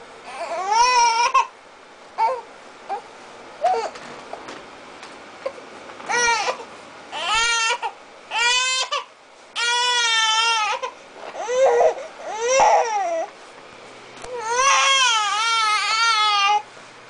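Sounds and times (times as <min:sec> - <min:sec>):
baby crying: 0:00.3 - 0:01.5, 0:02.2 - 0:03.0, 0:06.1 - 0:13.3, 0:14.3 - 0:16.7.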